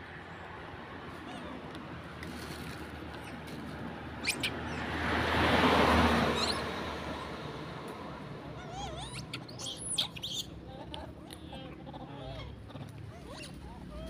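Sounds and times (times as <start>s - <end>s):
monkeys squeaking: 1.2s - 1.6s, 3.1s - 5.0s, 6.2s - 6.8s, 8.5s - 14.0s.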